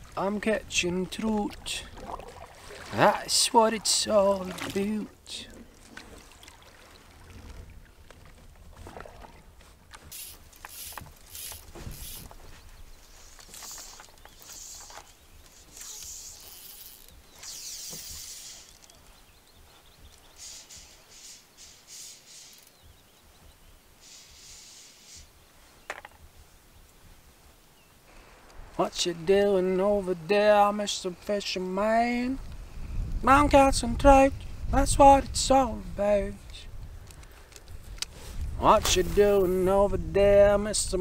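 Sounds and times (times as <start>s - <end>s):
paddle swishing in water: 0.9s - 22.6s.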